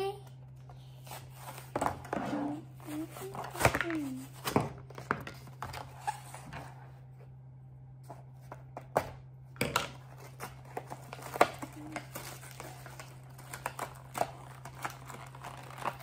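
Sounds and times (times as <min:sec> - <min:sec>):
low hum: 0:00.0 - 0:16.0
plastic packaging crinkling: 0:10.0 - 0:16.0.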